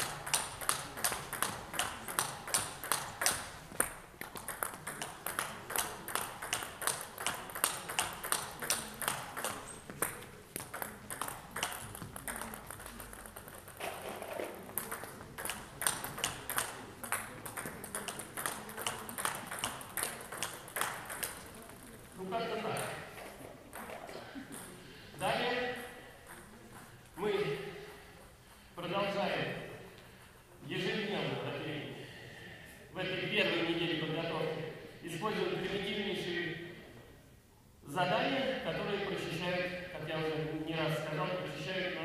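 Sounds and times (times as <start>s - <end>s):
table tennis ball hits: 0.0s - 21.9s.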